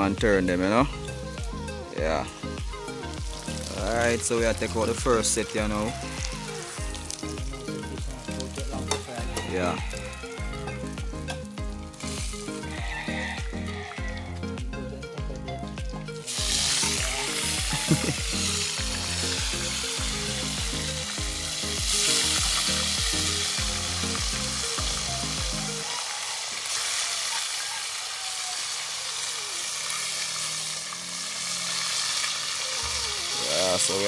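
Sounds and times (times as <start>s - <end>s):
background music beat: 0.0s - 25.9s
fish sizzling in hot oil: 1.0s - 14.1s, 16.0s - 34.0s.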